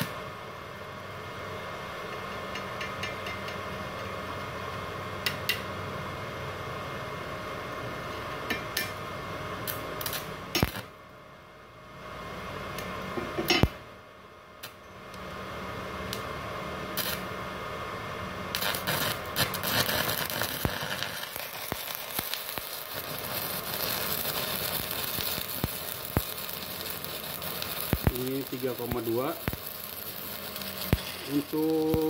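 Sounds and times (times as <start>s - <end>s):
welding arc crackling hiss: 0.0s - 5.7s, 7.5s - 10.9s, 14.6s - 17.4s, 18.4s - 32.0s
person talking: 28.1s - 29.5s, 31.2s - 32.0s.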